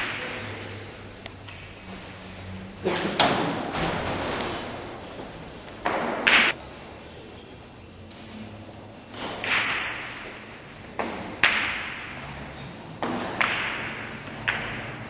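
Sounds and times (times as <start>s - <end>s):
billiard balls clicking: 5.6s - 6.6s, 9.2s - 15.0s
cue striking ball: 5.8s - 6.6s, 9.2s - 12.3s, 13.0s - 15.0s.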